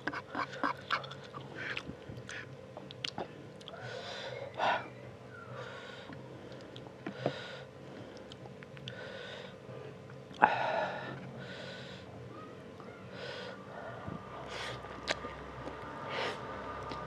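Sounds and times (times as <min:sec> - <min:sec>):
chewing noodles: 0:14.7 - 0:15.8.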